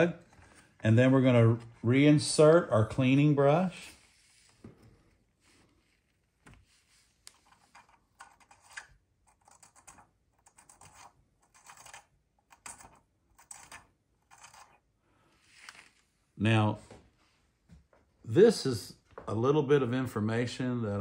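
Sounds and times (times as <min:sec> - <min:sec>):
brush scraping: 0:03.5 - 0:16.1.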